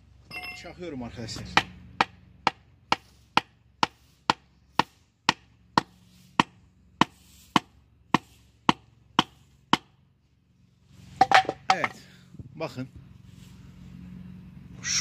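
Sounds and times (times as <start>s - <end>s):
wooden board hammering metal tube: 1.5s - 10.0s.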